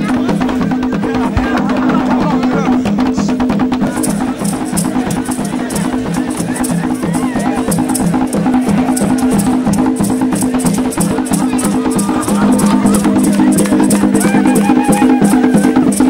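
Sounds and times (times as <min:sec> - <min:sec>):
drums beating a steady rhythm: 0:00.0 - 0:16.0
voices singing: 0:00.0 - 0:16.0
high rattle: 0:03.8 - 0:16.0.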